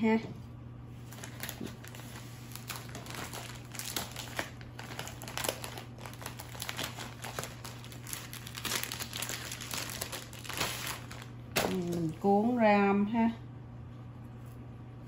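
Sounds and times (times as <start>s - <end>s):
plastic packaging crinkling: 1.0s - 12.3s.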